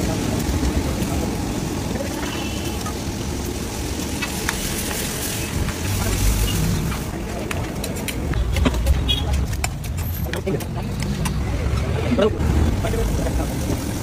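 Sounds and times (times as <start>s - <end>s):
curry sizzling on griddle: 0.0s - 8.4s, 12.4s - 14.0s
street traffic: 0.0s - 14.0s.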